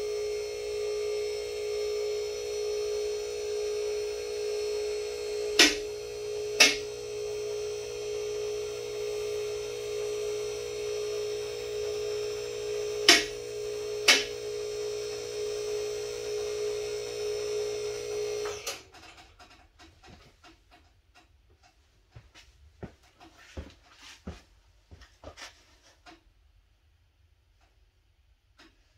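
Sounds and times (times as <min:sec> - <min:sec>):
hydraulic pump humming: 0:00.0 - 0:18.9.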